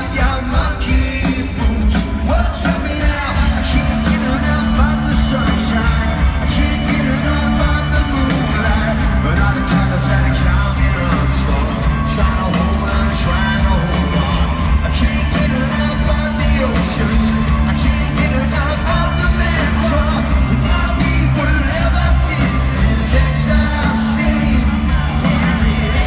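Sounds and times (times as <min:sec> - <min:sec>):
driving drum beat: 0:00.0 - 0:26.0
live rock band: 0:00.0 - 0:26.0
person singing: 0:00.0 - 0:26.0.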